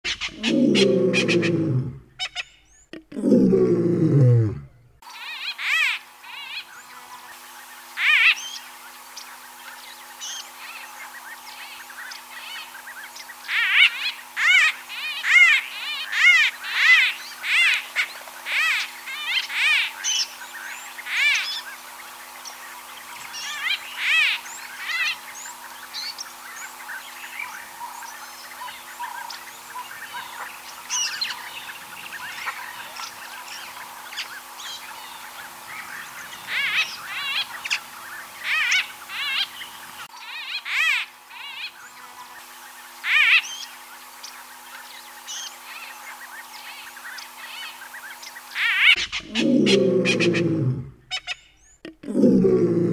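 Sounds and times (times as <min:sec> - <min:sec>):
bird calling quavering notes: 0:00.0 - 0:04.5, 0:28.4 - 0:41.8, 0:48.4 - 0:52.8.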